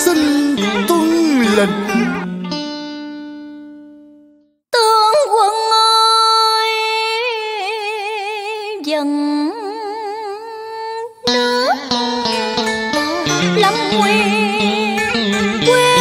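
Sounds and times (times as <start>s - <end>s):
melody with wide slow vibrato: 11.4s - 16.0s.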